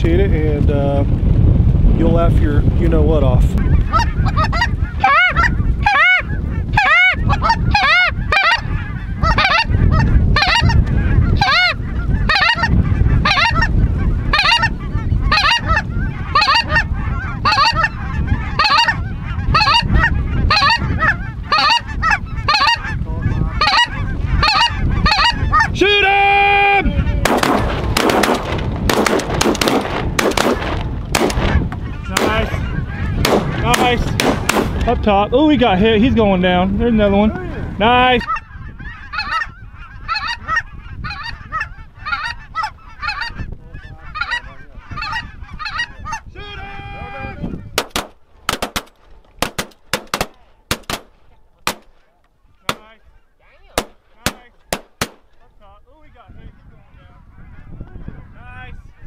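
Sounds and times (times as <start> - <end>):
geese honking: 3.6 - 26.1, 26.7 - 36.1, 37.2 - 47.8.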